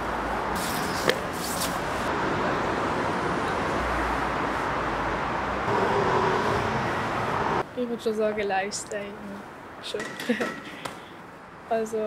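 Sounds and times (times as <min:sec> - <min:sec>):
distant city traffic hum: 0:00.0 - 0:12.0
shoe rustling: 0:00.5 - 0:02.1.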